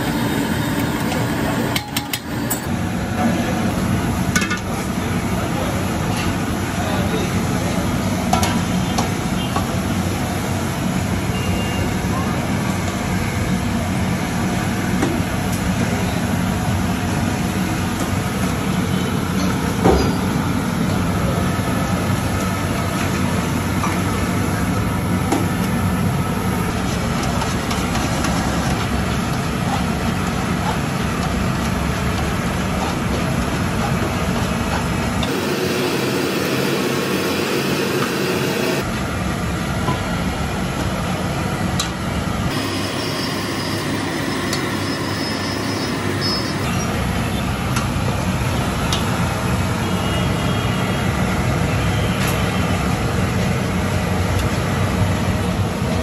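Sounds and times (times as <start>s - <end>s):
pot of tea boiling hard: 35.0s - 39.2s.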